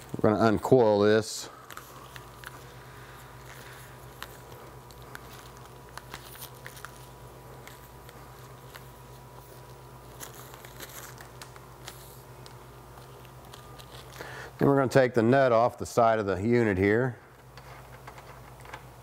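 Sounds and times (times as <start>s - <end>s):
plastic tubing crinkling: 0.0s - 14.5s
steady low hum: 0.0s - 19.0s.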